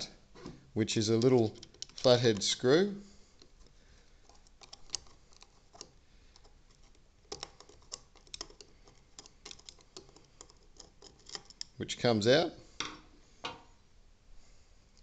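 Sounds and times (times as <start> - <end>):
screwdriver clicking on metal: 1.1 - 2.6, 4.3 - 11.8.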